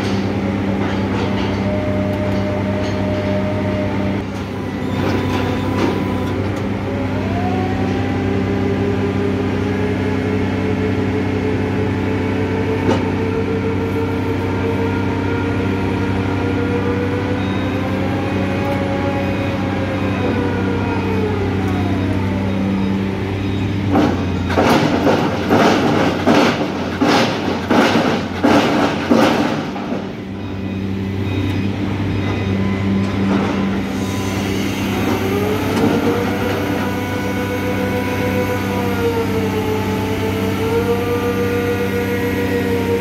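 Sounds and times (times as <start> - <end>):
loud metallic clanks and knocks: 0.0 - 1.7, 23.8 - 30.9
diesel engine running: 0.0 - 43.0.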